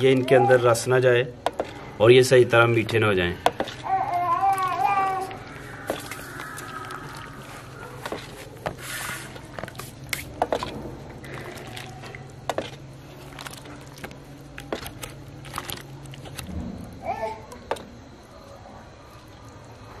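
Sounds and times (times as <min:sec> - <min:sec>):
wet squishing: 0:00.0 - 0:16.6
syrup splashing: 0:05.0 - 0:16.5.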